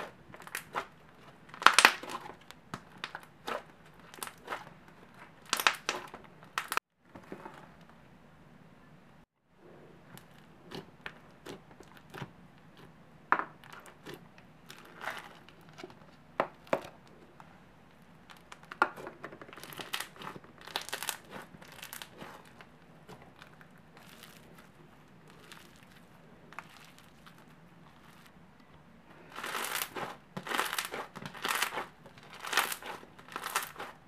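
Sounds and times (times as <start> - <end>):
slime crackling and popping: 0.0 - 6.8, 18.3 - 24.6, 29.3 - 34.0.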